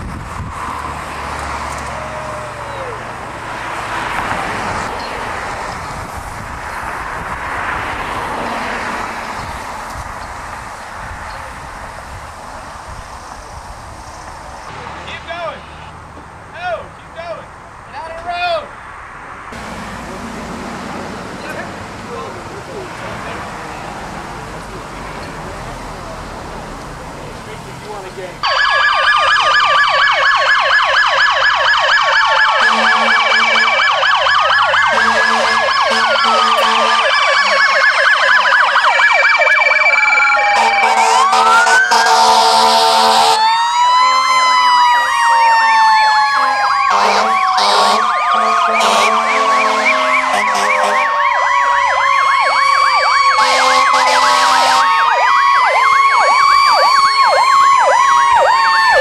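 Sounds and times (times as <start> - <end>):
emergency sirens wailing: 0.0 - 59.0
slowly falling siren tone: 0.5 - 3.4, 28.4 - 59.0
horn blasts: 32.6 - 33.9, 34.8 - 38.2, 40.4 - 43.4, 46.3 - 51.2, 53.4 - 54.9.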